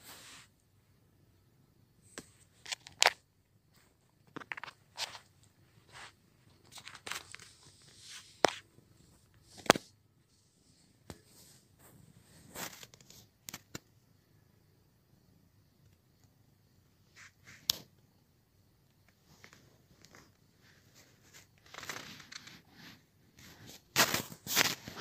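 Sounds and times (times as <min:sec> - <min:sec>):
rustling and scraping at microphone: 0:00.0 - 0:00.6, 0:02.1 - 0:13.9, 0:17.0 - 0:17.9, 0:19.1 - 0:25.0.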